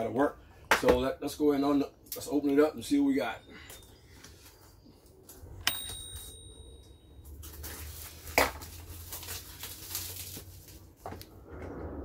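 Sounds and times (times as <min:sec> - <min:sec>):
plastic bag crinkling: 0:07.3 - 0:11.0.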